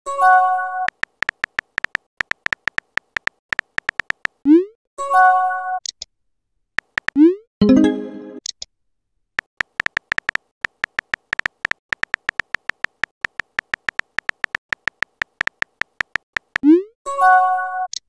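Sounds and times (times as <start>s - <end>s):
typing key clicks: 0.8s - 4.4s, 6.8s - 7.2s, 9.4s - 16.7s.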